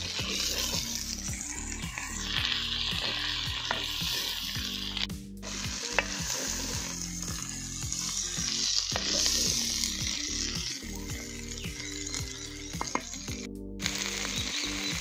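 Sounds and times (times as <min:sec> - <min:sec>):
wooden spatula scraping pot: 0:00.0 - 0:04.5
beans sizzling in a clay pot: 0:00.0 - 0:15.0
low background music: 0:00.0 - 0:15.0.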